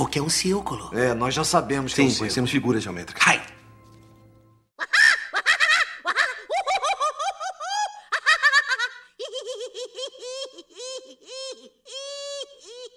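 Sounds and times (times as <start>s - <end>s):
high-pitched laughter: 4.8s - 12.9s.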